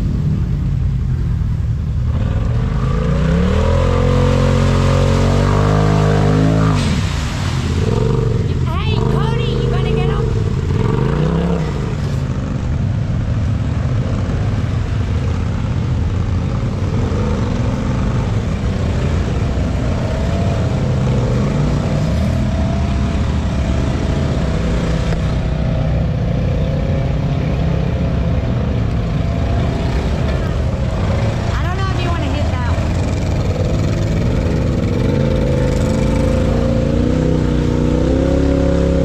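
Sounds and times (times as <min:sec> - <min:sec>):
utility vehicle engines revving: 0:00.0 - 0:39.0.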